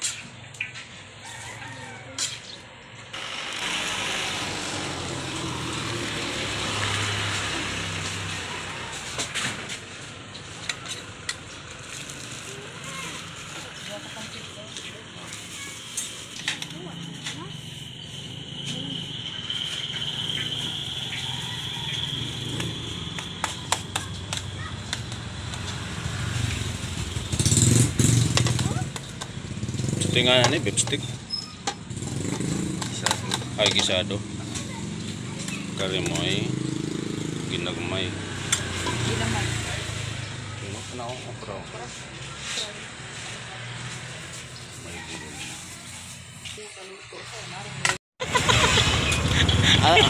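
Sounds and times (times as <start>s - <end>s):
rooster crowing faintly: 1.2s - 2.5s, 44.4s - 46.6s
high-pitched whine: 3.1s - 6.0s
steady loud noise: 3.1s - 6.8s.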